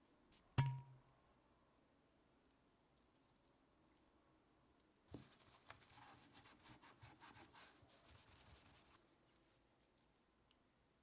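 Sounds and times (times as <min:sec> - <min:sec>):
soft knock: 0:00.6 - 0:01.0.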